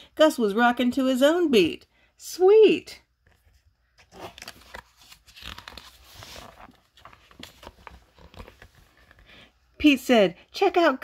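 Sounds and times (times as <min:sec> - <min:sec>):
book pages rustling and turning: 0:03.2 - 0:09.5.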